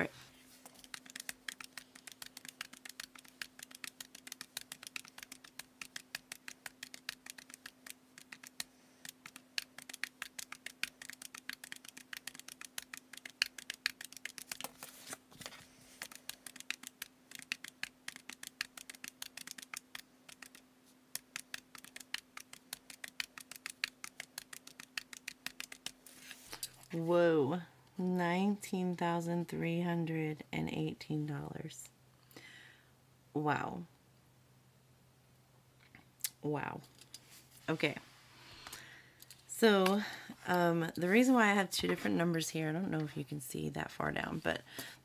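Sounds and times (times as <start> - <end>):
faint steady hum: 0.0 - 45.0
paper rustling: 0.1 - 20.6
calculator keys clicking: 0.7 - 26.0.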